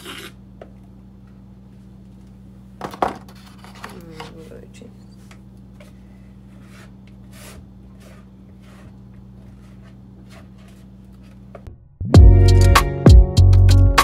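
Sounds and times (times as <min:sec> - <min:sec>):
steady low hum: 0:00.0 - 0:12.3
spatula scraping plastic bowl: 0:06.4 - 0:11.4.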